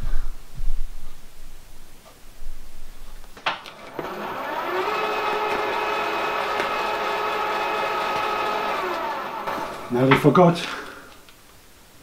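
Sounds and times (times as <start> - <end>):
milling machine motor whine: 3.7 - 11.2.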